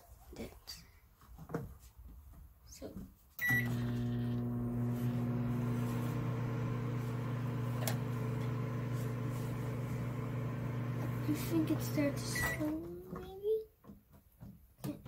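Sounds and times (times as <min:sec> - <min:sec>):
microwave beep: 0:03.4 - 0:09.0, 0:12.2 - 0:12.7
microwave oven humming: 0:03.4 - 0:12.7.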